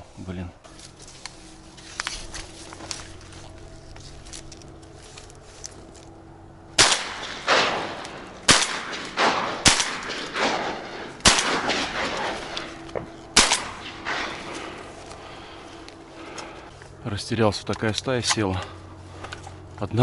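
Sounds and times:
shotgun shots with echo: 6.8 - 12.7, 13.4 - 14.8.

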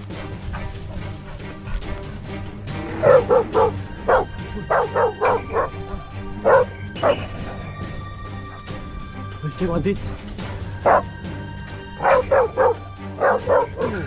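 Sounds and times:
background music: 0.0 - 14.0
dog barking: 3.0 - 8.8, 10.8 - 11.2, 12.0 - 14.0.

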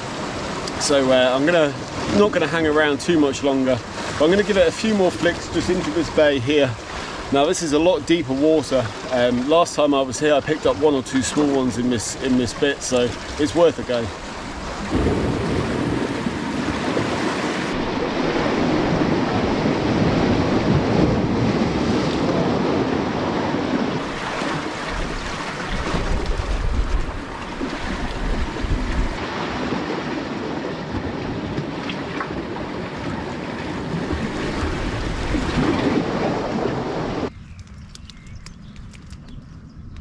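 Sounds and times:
sea waves washing against rocks: 0.0 - 37.3
wind buffeting microphone: 13.0 - 40.0.

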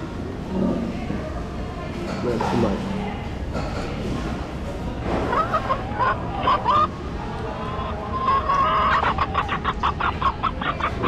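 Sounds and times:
clucking calls: 5.3 - 11.0.

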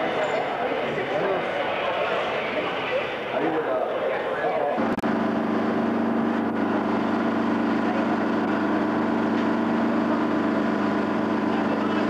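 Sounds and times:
minibus engine idling: 4.4 - 12.0.

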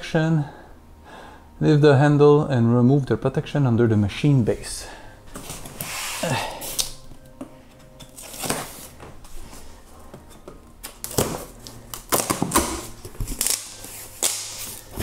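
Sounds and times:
packaging scraping and rustling: 7.9 - 10.0.

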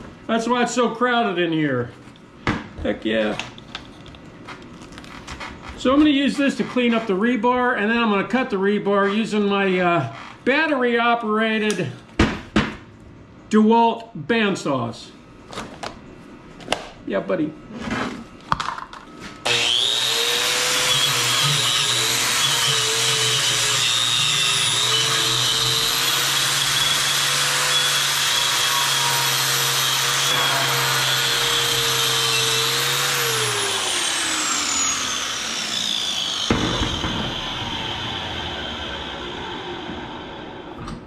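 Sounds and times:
angle grinder motor whine: 19.4 - 41.0.

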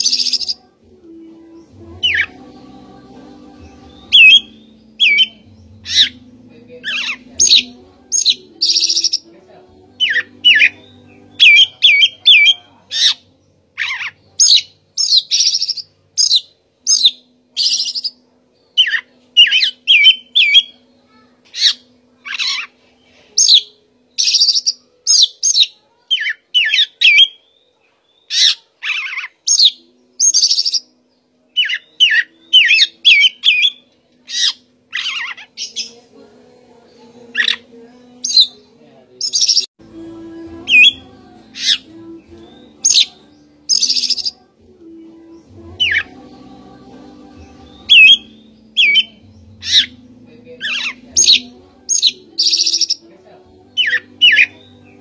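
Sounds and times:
bird singing whistled phrases: 42.8 - 44.4, 47.9 - 49.9, 50.7 - 53.0.

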